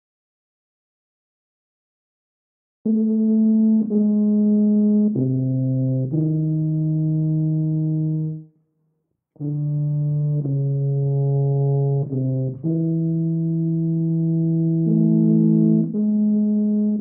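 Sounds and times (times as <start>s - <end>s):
solo tuba melody: 2.9s - 8.6s, 9.4s - 17.0s.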